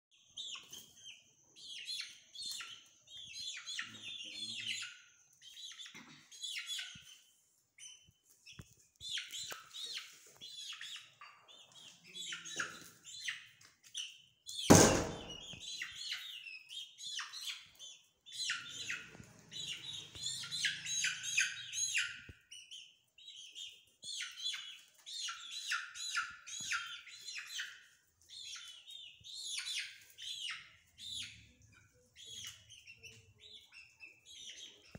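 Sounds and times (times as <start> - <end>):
chicks peeping: 0.2 - 34.9
loud knock: 14.7 - 15.5.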